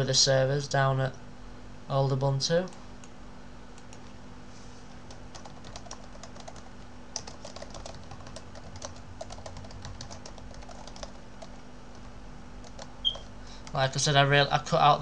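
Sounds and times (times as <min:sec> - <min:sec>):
faint steady hum: 0:00.0 - 0:15.0
keyboard typing: 0:05.1 - 0:13.8.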